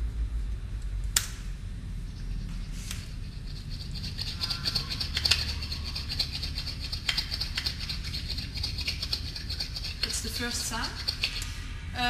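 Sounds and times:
rapid high-pitched flickering: 0:03.0 - 0:11.5.

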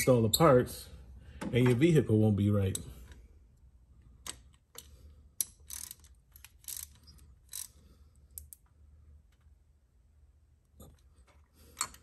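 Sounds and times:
ratchet clicking and rasping: 0:04.8 - 0:08.6.

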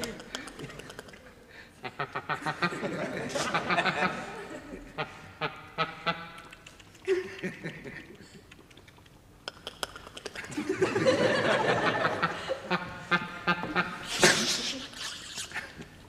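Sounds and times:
people laughing: 0:00.0 - 0:06.1, 0:07.0 - 0:08.4, 0:10.4 - 0:15.9.

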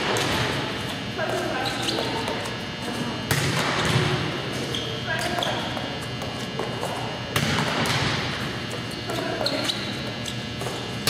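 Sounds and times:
volleyball smack echoing in gym: 0:03.2 - 0:05.9, 0:06.6 - 0:08.6.

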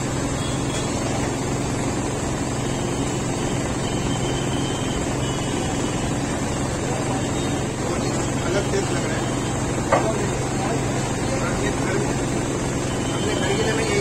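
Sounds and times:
low mechanical hum: 0:00.0 - 0:14.0.

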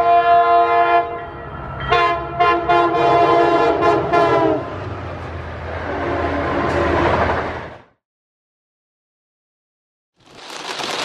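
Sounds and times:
locomotive air horn blasts: 0:00.0 - 0:01.3, 0:01.9 - 0:04.7.

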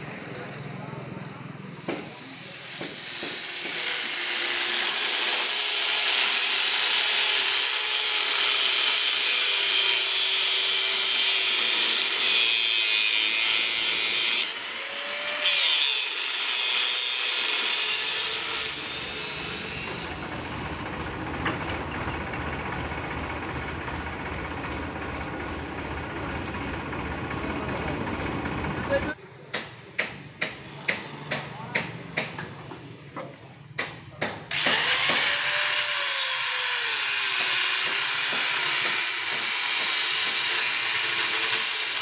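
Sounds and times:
angle grinder grinding steel: 0:02.1 - 0:21.3, 0:34.5 - 0:42.0.

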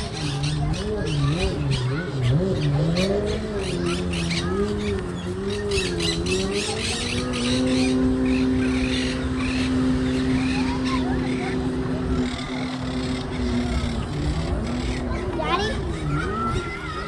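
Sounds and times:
motor running: 0:00.0 - 0:17.0
small birds chirping: 0:00.0 - 0:17.0.

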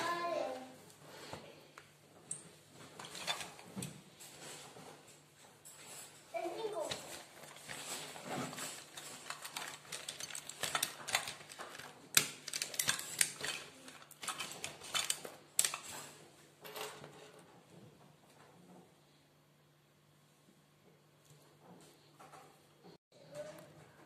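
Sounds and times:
pens clicking and clattering: 0:06.9 - 0:16.2.

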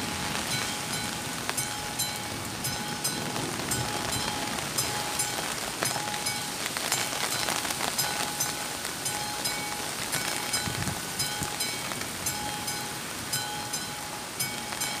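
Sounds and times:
heavy rain on wet road: 0:00.0 - 0:15.0.

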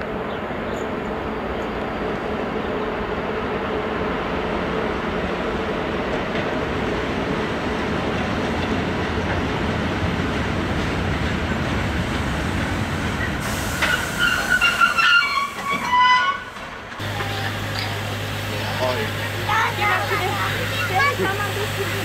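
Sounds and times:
steam train rumbling: 0:00.0 - 0:22.0
high-pitched metallic wheel squeals: 0:13.9 - 0:16.5.

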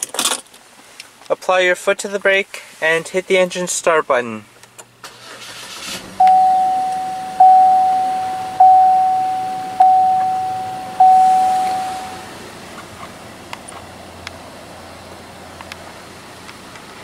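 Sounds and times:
car dashboard warning chime: 0:06.2 - 0:12.4.

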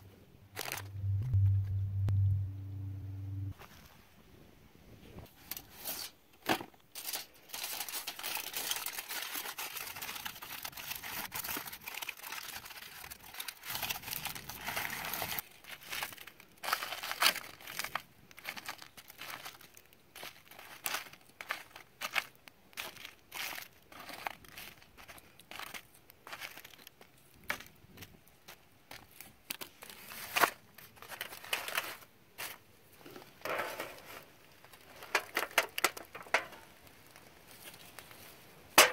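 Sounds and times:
aluminium foil crinkling: 0:00.5 - 0:00.9, 0:05.3 - 0:38.9.

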